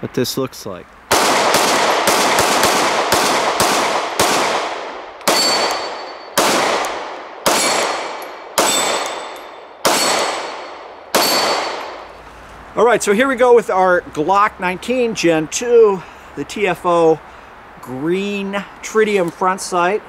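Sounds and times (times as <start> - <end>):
pistol shots with echo: 1.1 - 12.1.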